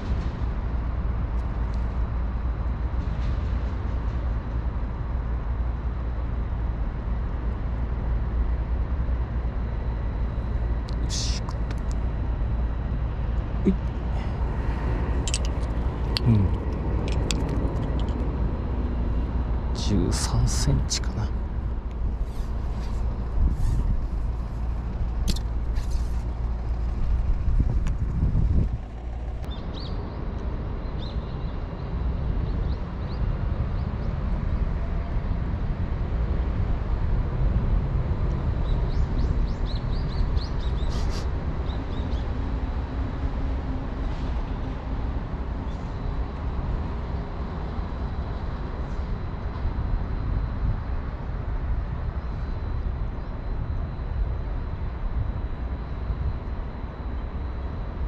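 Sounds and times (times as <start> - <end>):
low outdoor rumble: 0.0 - 58.0
small birds chirping: 38.6 - 42.3.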